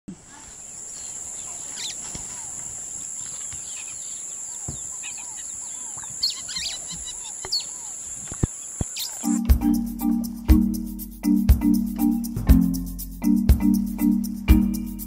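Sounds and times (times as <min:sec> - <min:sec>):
birds chirping and calling: 0:00.3 - 0:09.8.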